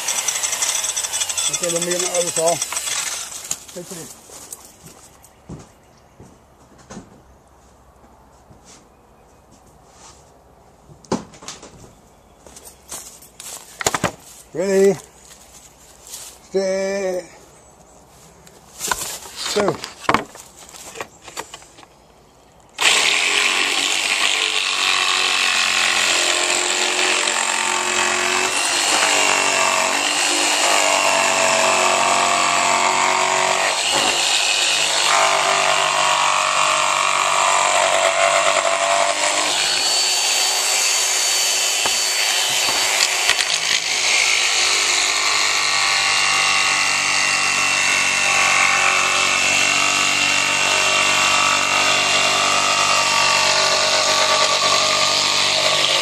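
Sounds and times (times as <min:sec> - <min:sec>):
electric jigsaw cutting wood: 0:00.0 - 0:04.1, 0:22.8 - 0:56.0.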